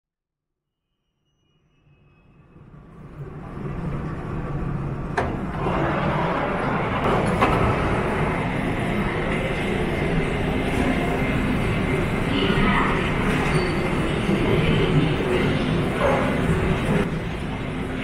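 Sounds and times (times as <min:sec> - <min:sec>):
subway train rumbling: 0:01.6 - 0:18.0.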